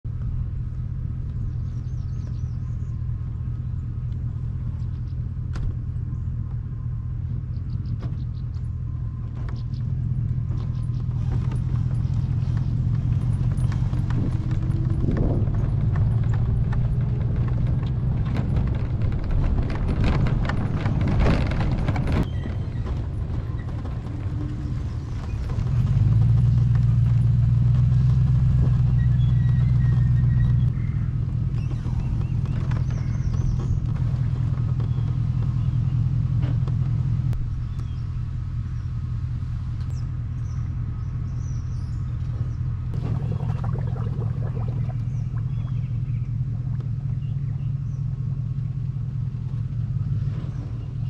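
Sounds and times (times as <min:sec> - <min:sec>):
road rumble: 0:00.0 - 0:51.0
trailer rattling and clattering: 0:07.2 - 0:38.0.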